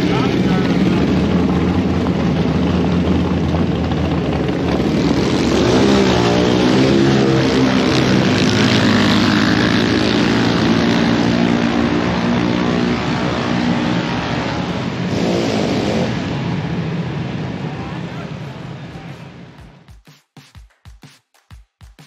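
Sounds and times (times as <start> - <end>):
motor vehicle engine running: 0.0 - 19.9.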